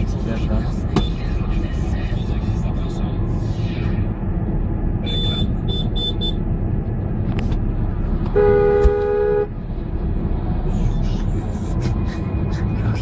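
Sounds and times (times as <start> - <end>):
engine and road rumble: 0.0 - 13.0
car horn: 5.0 - 6.4, 8.3 - 9.6.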